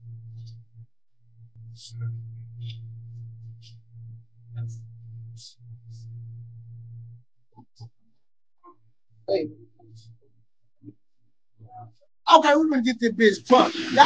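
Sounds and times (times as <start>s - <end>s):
hip-hop beat: 11.6s - 14.0s.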